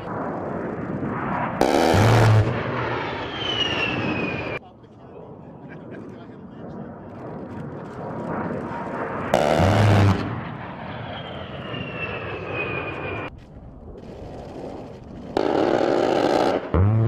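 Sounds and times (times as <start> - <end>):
jet engine whine: 0.0 - 17.0
rotary cannon firing bursts: 0.3 - 3.9, 9.2 - 10.7, 14.0 - 17.0.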